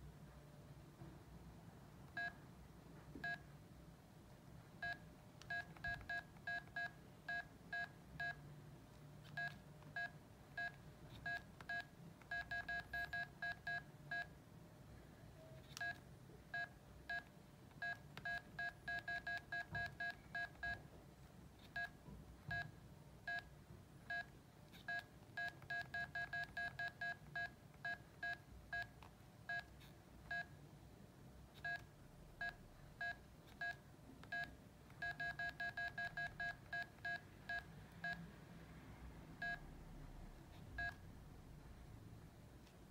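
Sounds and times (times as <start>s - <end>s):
two-tone phone beeps: 9.3s - 14.3s, 16.6s - 20.8s, 31.6s - 38.2s.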